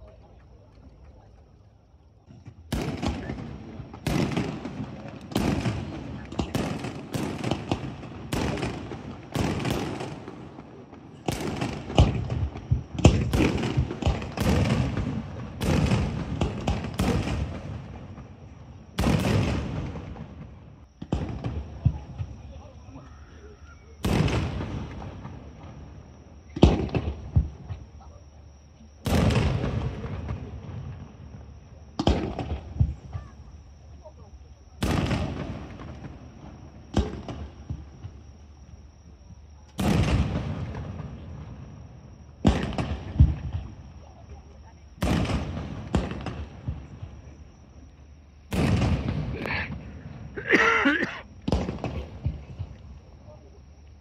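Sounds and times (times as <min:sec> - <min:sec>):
fireworks bursting: 0:02.2 - 0:22.5, 0:24.0 - 0:28.0, 0:29.0 - 0:33.6, 0:34.8 - 0:38.5, 0:39.8 - 0:41.7, 0:42.4 - 0:43.9, 0:45.0 - 0:47.3, 0:48.5 - 0:52.8.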